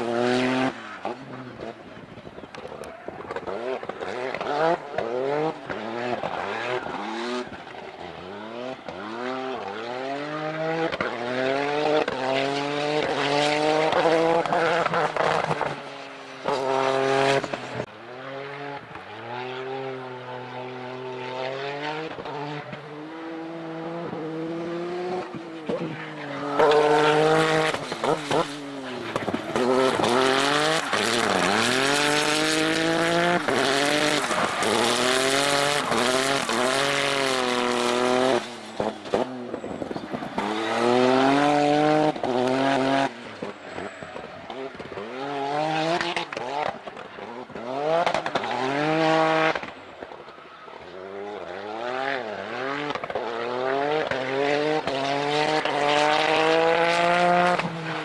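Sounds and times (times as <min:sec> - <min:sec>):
race car engine revving: 0:00.0 - 0:49.9, 0:50.8 - 0:58.0.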